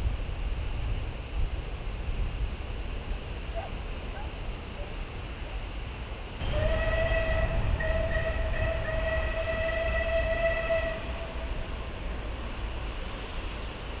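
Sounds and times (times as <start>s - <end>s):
wind rumble on microphone: 0.0s - 14.0s
steam locomotive whistle: 6.4s - 11.8s.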